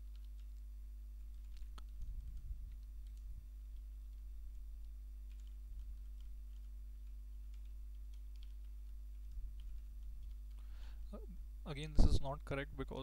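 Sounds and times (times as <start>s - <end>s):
faint keyboard keystrokes: 0.0s - 0.6s, 1.3s - 10.7s
low electrical hum: 0.0s - 13.0s.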